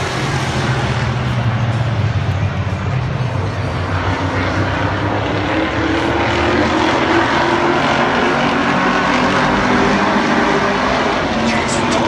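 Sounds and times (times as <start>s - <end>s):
stock car engines droning: 0.0s - 12.0s.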